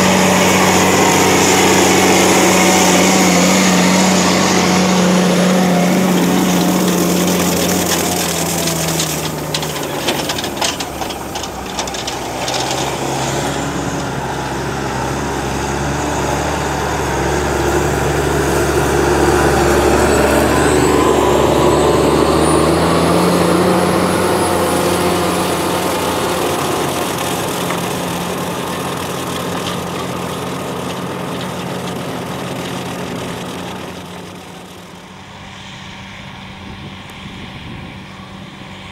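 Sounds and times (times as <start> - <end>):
rattling: 0.0 - 14.4, 25.2 - 34.7
tractor engine under load: 0.0 - 35.5.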